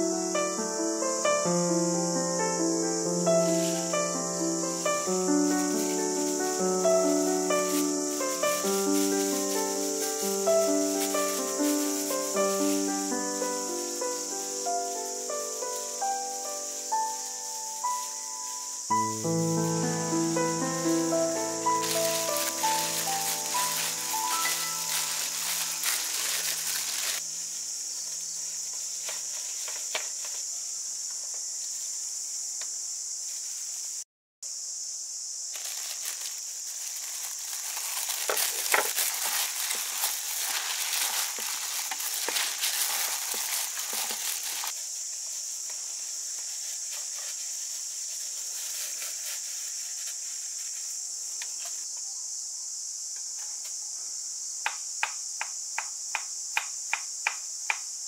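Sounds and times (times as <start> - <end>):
high insect drone: 0.0 - 58.0
plastic glove rustling: 0.4 - 30.6, 35.5 - 51.6
rice squishing: 20.2 - 27.2, 35.6 - 44.8.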